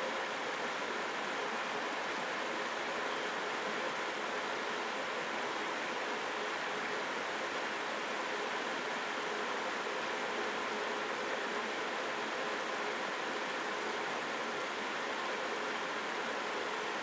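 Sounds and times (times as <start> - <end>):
steady background hiss: 0.0 - 17.0.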